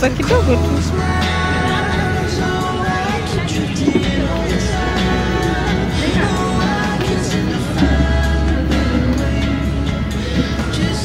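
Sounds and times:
background music with held notes: 0.0s - 11.0s
heavy bass line: 0.0s - 11.0s.

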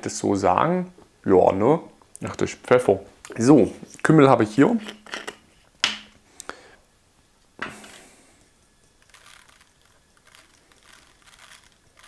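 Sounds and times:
seeds shaken from jar: 8.6s - 12.0s.

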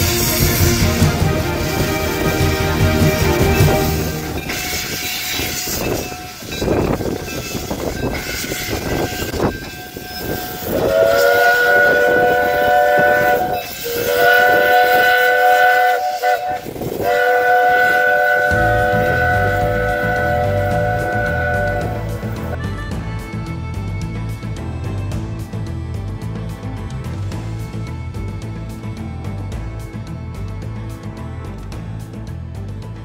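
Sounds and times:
steam hissing: 0.0s - 22.6s
steam whistle chord: 0.0s - 23.5s.

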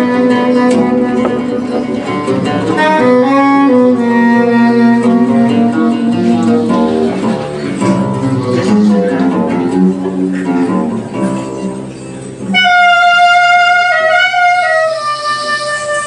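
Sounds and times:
jazz band playing: 0.0s - 16.0s
plucked string notes: 0.0s - 16.0s
wind instrument sustained notes: 12.5s - 16.0s.

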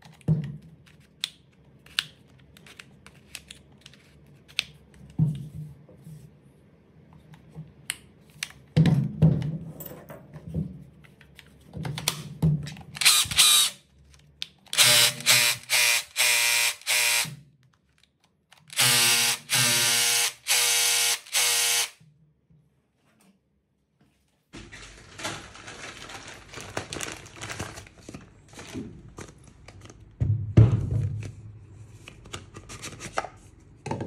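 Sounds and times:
rotary hammer motor bursts: 13.0s - 13.8s, 14.8s - 17.3s, 18.7s - 22.0s.

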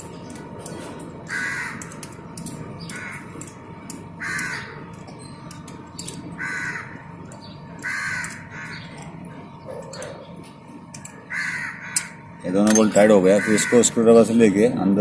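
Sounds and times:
spanner metallic clicks: 0.0s - 9.2s, 9.8s - 13.2s
bird cawing: 1.3s - 2.1s, 2.8s - 9.4s, 11.0s - 12.4s, 13.0s - 14.4s.

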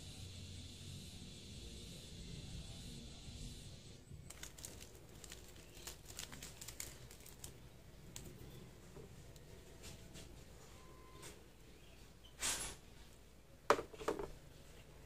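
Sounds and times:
paper sachet crinkling: 4.2s - 9.5s
sachet tearing open: 4.3s - 8.6s.

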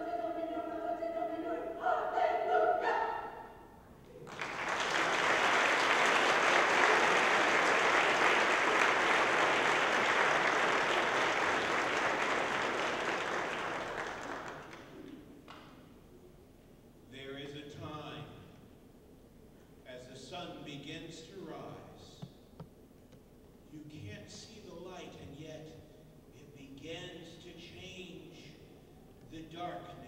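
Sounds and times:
women's choir singing: 0.0s - 3.7s
audience applauding: 4.2s - 15.1s.

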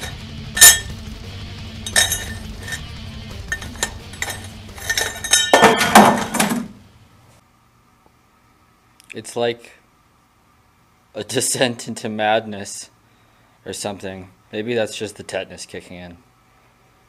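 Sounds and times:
steel tubing clinking: 0.0s - 1.1s, 1.8s - 6.6s
background music: 0.0s - 6.9s.

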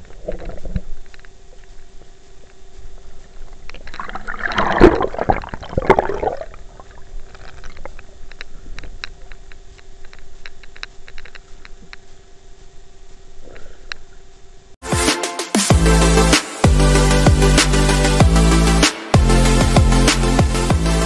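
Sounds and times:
faint hum: 0.0s - 14.8s
muffled water sloshing: 3.8s - 8.1s.

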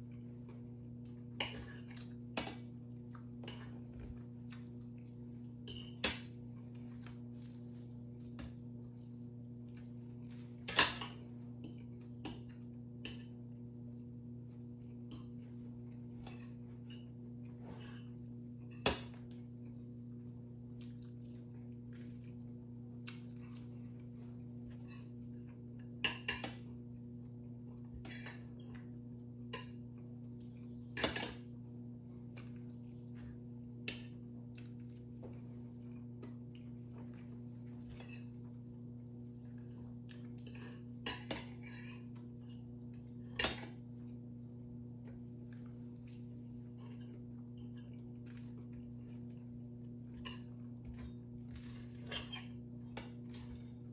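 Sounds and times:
steady low hum: 0.0s - 53.9s
knife and fork clinking on plate: 40.3s - 42.6s.

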